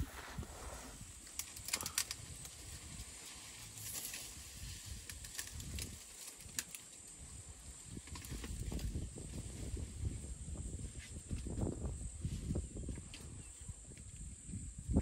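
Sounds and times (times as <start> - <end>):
grass and stems snapping: 1.3 - 3.1, 4.0 - 6.9.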